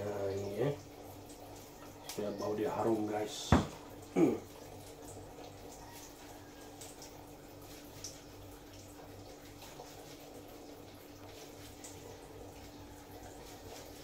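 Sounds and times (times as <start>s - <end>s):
taps on wooden cutting board: 3.5s - 3.8s.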